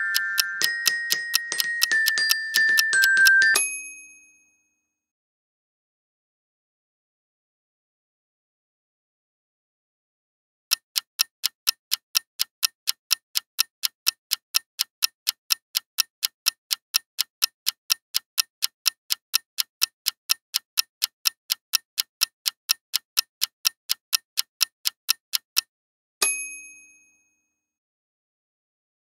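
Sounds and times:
countdown clock ticking: 0.0 - 3.6, 10.7 - 25.7.

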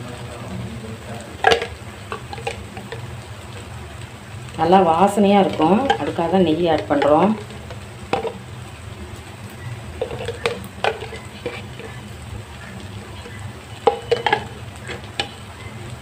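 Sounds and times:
low steady hum: 0.0 - 16.0
metal spatula scraping a pan: 10.0 - 12.0.

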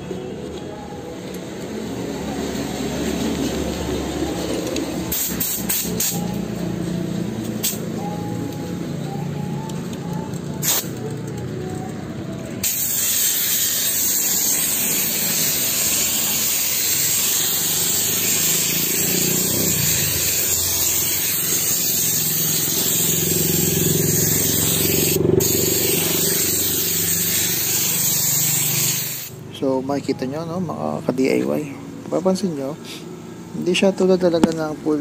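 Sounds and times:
air gun spraying water: 5.0 - 6.5, 7.4 - 8.1, 10.6 - 11.4, 12.6 - 29.4.

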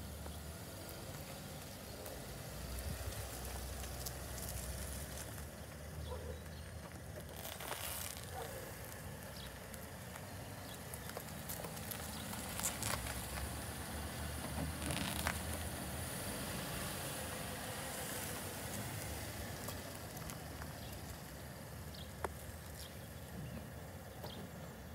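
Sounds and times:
car rolling past slowly: 0.0 - 24.9
small clicks and crackles: 2.8 - 13.6, 14.4 - 15.7, 19.6 - 21.4.

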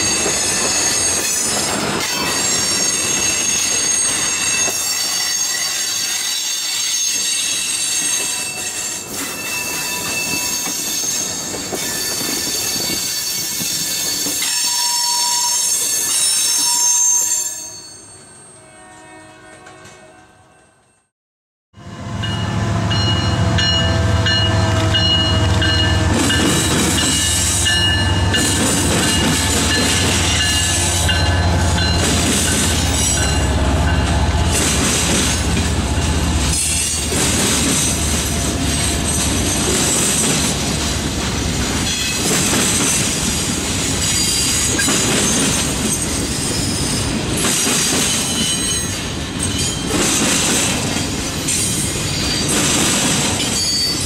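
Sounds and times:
freight train low rumble: 21.8 - 54.0
freight cars clattering on rails: 23.6 - 54.0.

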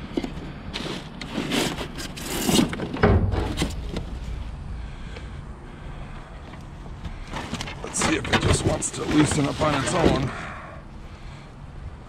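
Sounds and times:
heavy thump: 3.0 - 7.8
wooden panels scraping and knocking: 6.5 - 10.3
plastic and cardboard rustling: 7.0 - 10.3.

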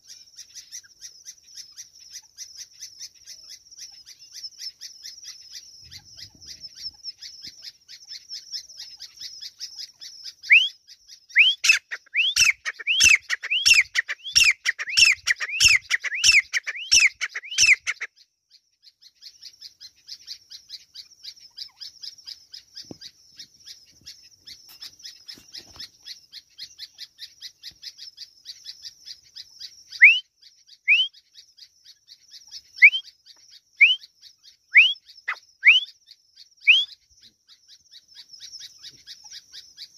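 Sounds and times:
francolin calling rising notes: 30.0 - 30.2, 30.9 - 31.1, 32.8 - 33.0, 33.8 - 34.0, 34.8 - 35.9.

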